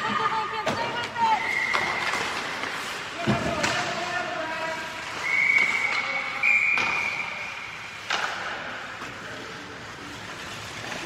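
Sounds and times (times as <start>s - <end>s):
referee's whistle: 1.4s - 2.2s, 5.2s - 7.5s.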